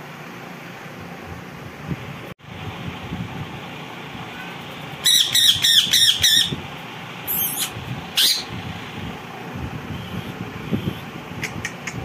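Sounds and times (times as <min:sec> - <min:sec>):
parakeet squawking: 0:05.0 - 0:06.6, 0:07.3 - 0:08.5.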